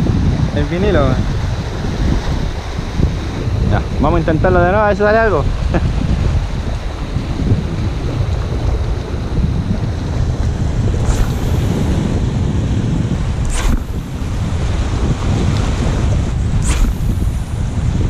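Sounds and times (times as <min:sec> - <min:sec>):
surf at shoreline: 0:00.0 - 0:18.0
wind blowing across microphone: 0:00.0 - 0:18.0
high swishes: 0:10.9 - 0:15.0, 0:16.5 - 0:18.0.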